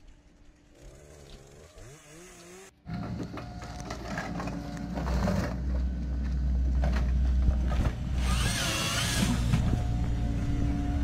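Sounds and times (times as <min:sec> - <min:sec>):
diesel engine and hydraulics running: 0:00.0 - 0:11.0.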